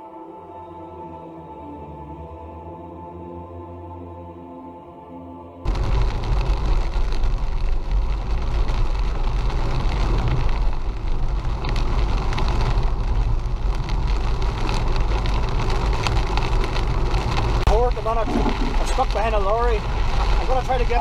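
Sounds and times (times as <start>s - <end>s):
engine and tyres on wet road: 5.7s - 21.0s
rain hitting windscreen: 5.7s - 21.0s.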